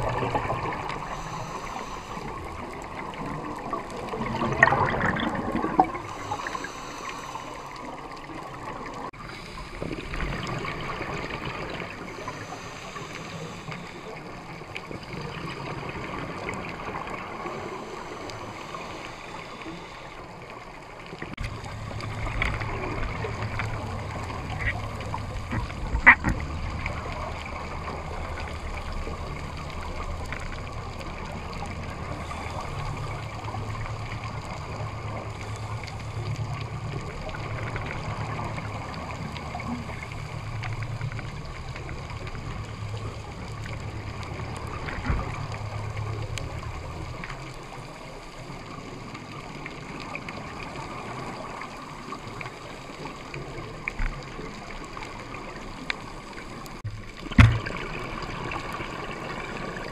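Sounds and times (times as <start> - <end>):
bubbling of exhaled air: 0.0 - 20.1, 21.2 - 47.4
muffled underwater rumble: 0.0 - 59.9.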